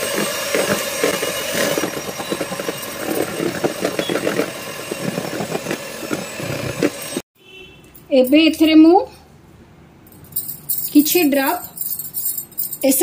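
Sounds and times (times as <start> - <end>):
electric mixer running: 0.0 - 7.2.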